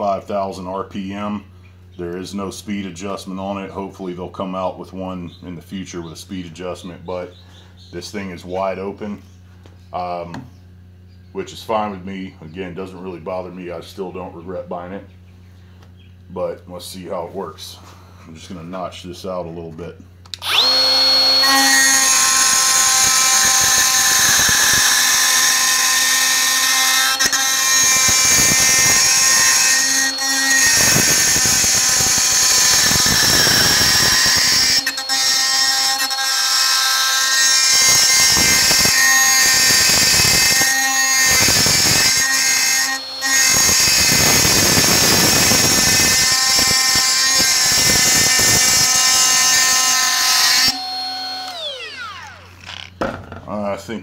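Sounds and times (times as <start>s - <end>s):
die grinder grinding metal: 20.4s - 53.2s.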